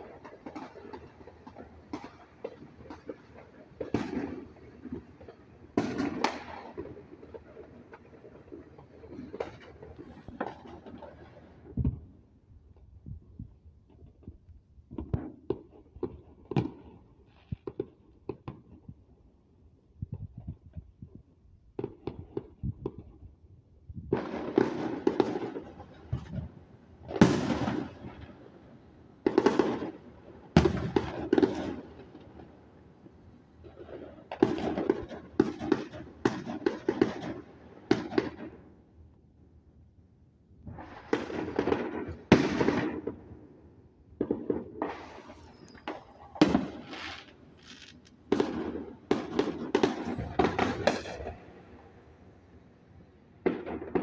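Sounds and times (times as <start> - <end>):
fireworks bangs: 0.0 - 12.2, 24.0 - 32.6, 33.6 - 38.6, 40.6 - 52.4, 53.4 - 54.0
fireworks crackling pops: 0.0 - 19.1, 20.0 - 23.4, 24.0 - 38.7, 40.6 - 43.5, 44.1 - 52.2, 53.4 - 54.0.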